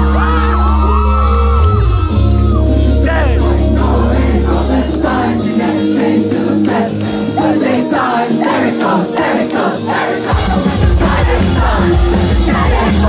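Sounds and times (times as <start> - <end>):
live band playing: 0.0 - 13.0
many voices singing: 3.2 - 13.0.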